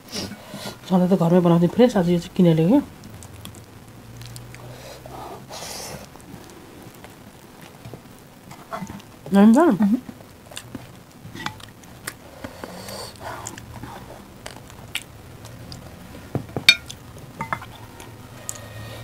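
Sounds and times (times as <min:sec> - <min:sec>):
ladle clicking on bowls and plates: 0:16.5 - 0:17.8.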